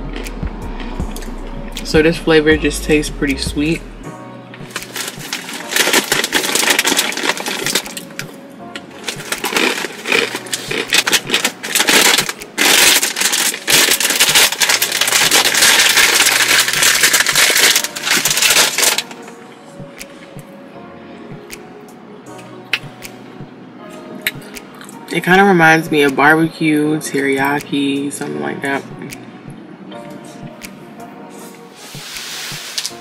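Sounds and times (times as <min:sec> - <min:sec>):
background music: 0:00.0 - 0:33.0
crunching dry noodle snack: 0:04.7 - 0:08.2, 0:08.8 - 0:19.2.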